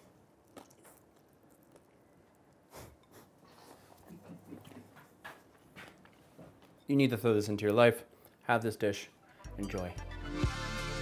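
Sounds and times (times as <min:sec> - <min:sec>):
person slurping and chewing noodles: 0:00.0 - 0:05.0.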